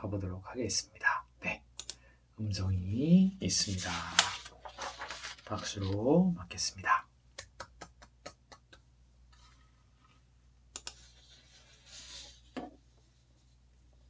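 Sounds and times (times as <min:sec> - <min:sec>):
computer mouse clicks: 0:01.8 - 0:02.0, 0:10.7 - 0:11.1.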